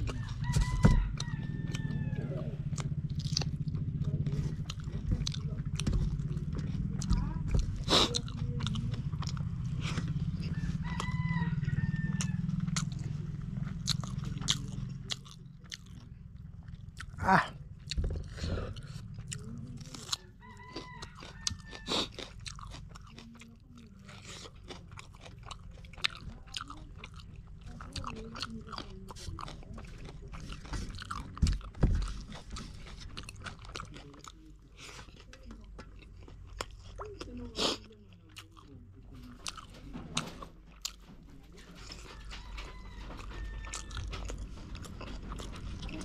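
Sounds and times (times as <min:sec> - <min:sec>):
low hum: 0:00.0 - 0:21.7
person chewing with wet mouth noises: 0:00.0 - 0:46.0.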